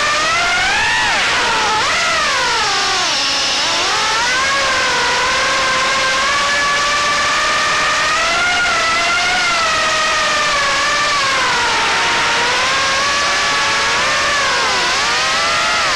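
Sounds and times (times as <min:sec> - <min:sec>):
quadcopter motors whining: 0:00.0 - 0:15.9.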